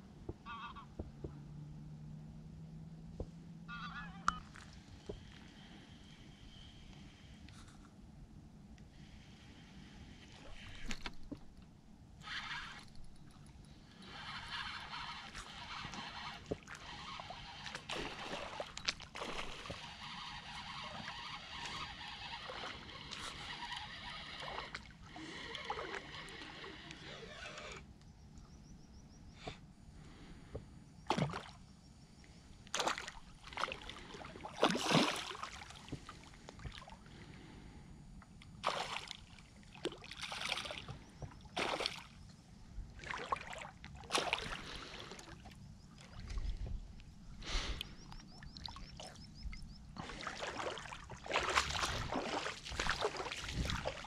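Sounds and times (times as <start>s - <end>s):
spinning reel winding: 12.2s - 13.3s, 14.0s - 17.8s, 19.6s - 24.7s.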